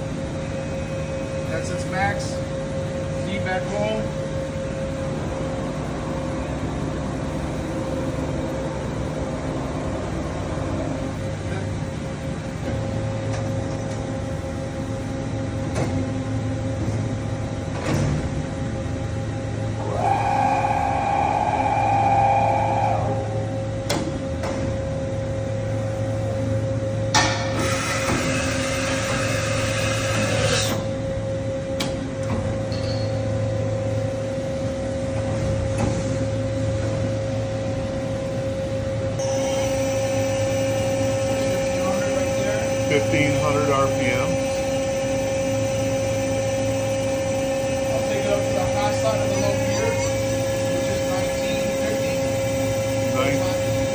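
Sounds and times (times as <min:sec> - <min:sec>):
machine steady hum: 0:00.0 - 0:53.9
motor whine: 0:18.6 - 0:24.3, 0:36.6 - 0:53.9.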